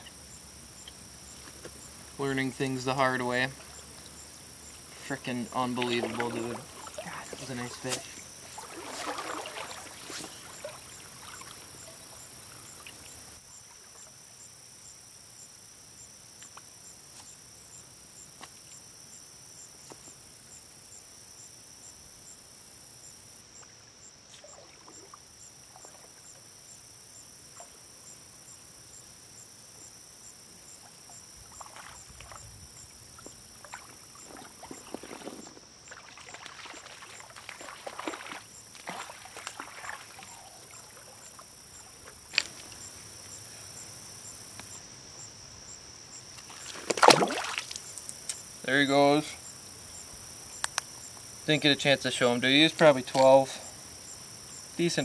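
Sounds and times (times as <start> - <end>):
stream water hissing: 0.0 - 13.5, 30.5 - 44.7, 46.4 - 50.3
water sloshing from wading: 3.6 - 13.4, 30.8 - 43.2, 46.4 - 48.2.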